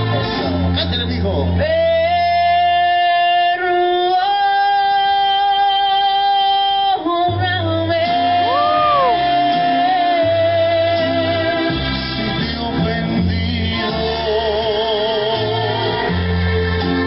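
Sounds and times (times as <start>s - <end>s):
bass line: 0.0s - 17.0s
recorded backing music: 0.0s - 17.0s
person singing long high note: 8.0s - 10.7s.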